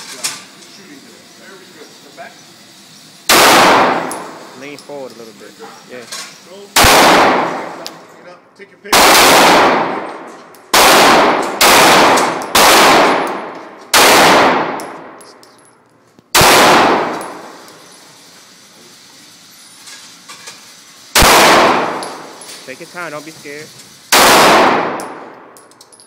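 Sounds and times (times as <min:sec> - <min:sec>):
pistol shots echoing: 0:03.3 - 0:04.4, 0:06.8 - 0:07.8, 0:08.9 - 0:15.2, 0:16.3 - 0:17.6, 0:21.2 - 0:22.4, 0:24.1 - 0:25.6.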